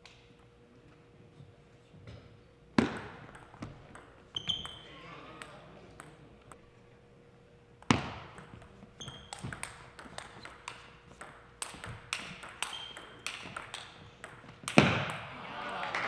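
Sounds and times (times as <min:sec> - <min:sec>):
table tennis ball knocking: 0:02.8 - 0:04.8, 0:07.8 - 0:15.3
shoes squeaking on floor: 0:04.3 - 0:05.1, 0:08.9 - 0:09.7, 0:12.6 - 0:13.3.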